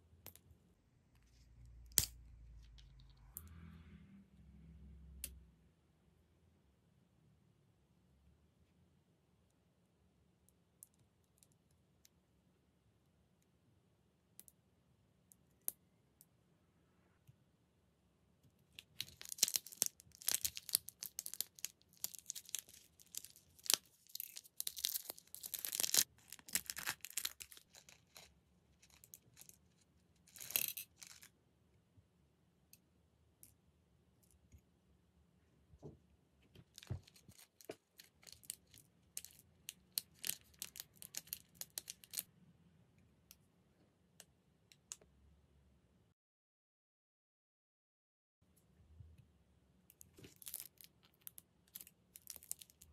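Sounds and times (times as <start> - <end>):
plastic packet crinkling: 18.8 - 29.5.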